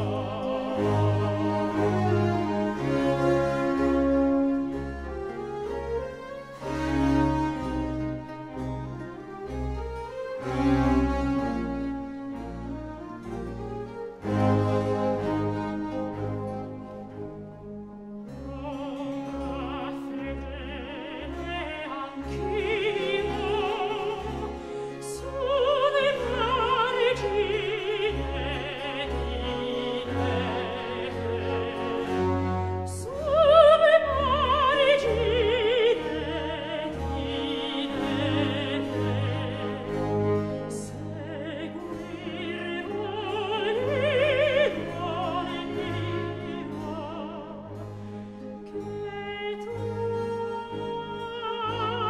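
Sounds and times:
singer with wide vibrato: 0.0s - 2.0s, 18.4s - 48.0s, 48.7s - 52.0s
orchestral accompaniment: 0.0s - 52.0s.

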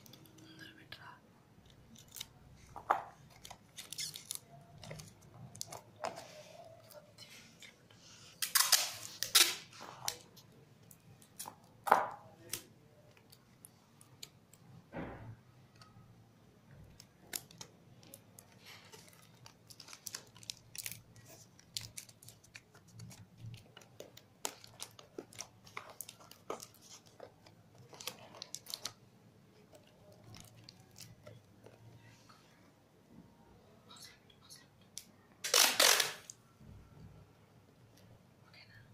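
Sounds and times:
cardboard and paper rustling: 17.4s - 29.0s.

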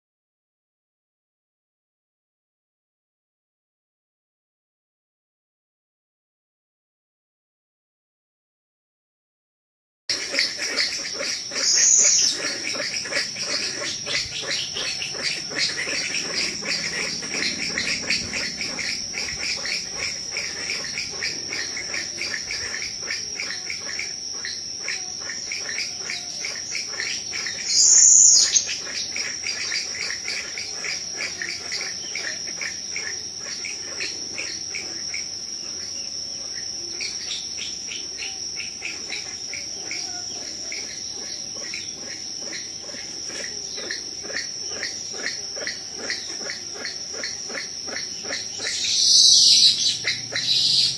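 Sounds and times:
insect high-pitched whine: 10.1s - 50.9s
loud high insect buzz: 10.1s - 50.9s
rapid pulsing insect chirps: 10.1s - 50.9s.

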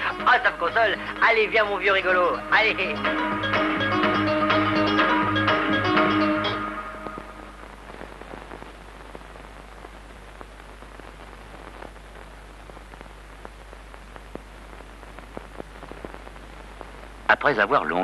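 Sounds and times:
steady hiss: 0.0s - 2.2s, 6.7s - 18.0s
music: 0.0s - 7.6s
faint crackles and clicks: 7.0s - 18.0s.

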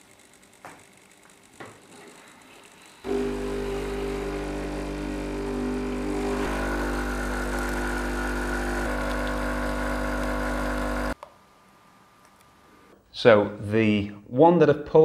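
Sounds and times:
espresso machine pump humming: 0.0s - 11.2s.

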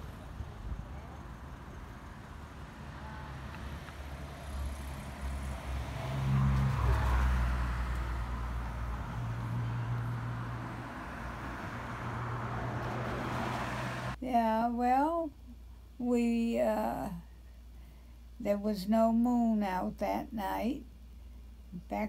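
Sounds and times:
cars passing: 0.0s - 14.2s
low engine hum: 0.0s - 14.2s.

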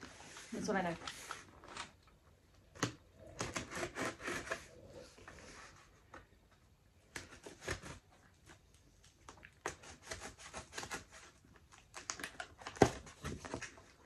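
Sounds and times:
scissors scraping packing tape: 3.3s - 4.7s.

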